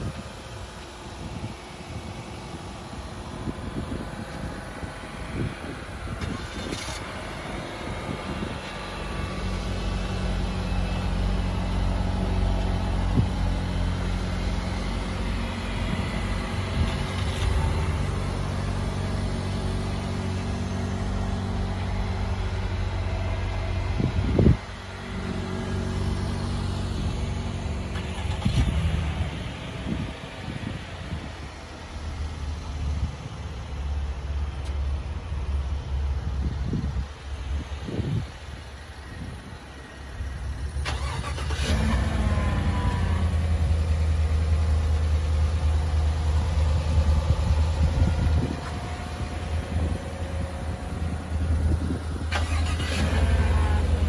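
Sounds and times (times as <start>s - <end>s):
vehicle engine idling: 0.0s - 54.0s.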